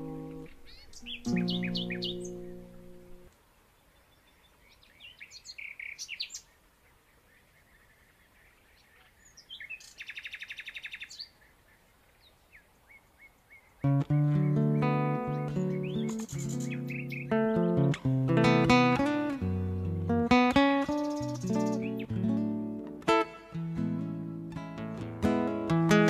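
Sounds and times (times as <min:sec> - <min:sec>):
small birds chirping: 0:00.0 - 0:23.2
acoustic guitar chord: 0:14.0 - 0:26.0.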